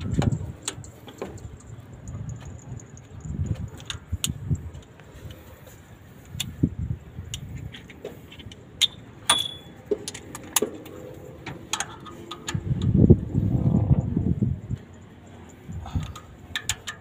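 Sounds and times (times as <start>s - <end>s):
metal tools clinking: 7.5s - 12.7s
ringing metal clink: 8.8s - 9.8s.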